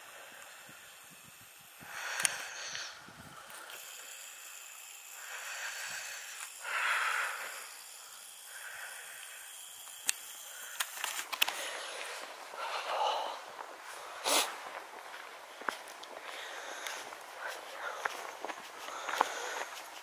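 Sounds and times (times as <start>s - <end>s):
person breathing: 0.0s - 20.0s
camera handling clicks: 9.8s - 11.6s.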